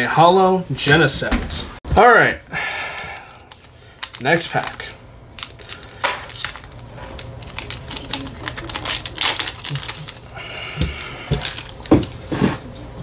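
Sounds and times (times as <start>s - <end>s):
foil wrapper crinkling: 2.9s - 12.6s.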